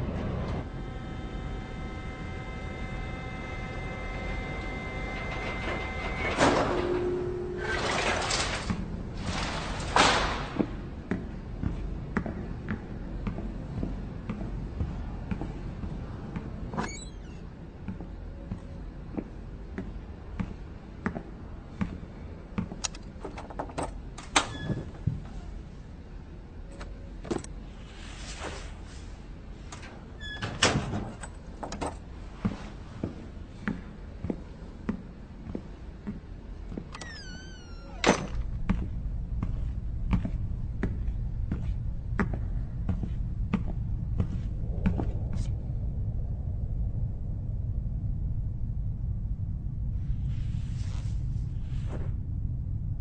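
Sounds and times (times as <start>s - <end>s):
machine rumble: 0.0s - 53.0s
squeaking metal hinge: 30.2s - 30.9s.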